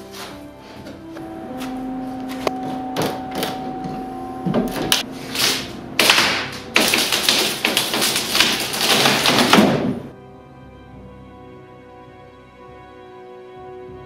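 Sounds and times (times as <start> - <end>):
hammer knocking nails into plywood: 6.0 - 9.9.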